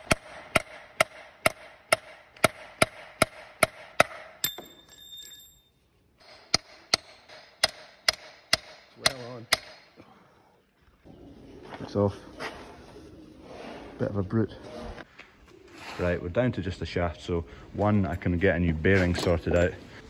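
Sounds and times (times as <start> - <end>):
hammer on steel punch: 0.0 - 4.8, 6.2 - 9.9
high metallic ringing: 4.4 - 5.9.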